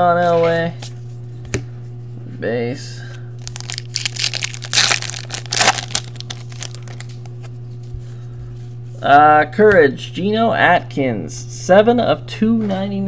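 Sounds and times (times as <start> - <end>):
foil wrapper tearing and crinkling: 3.4 - 7.3.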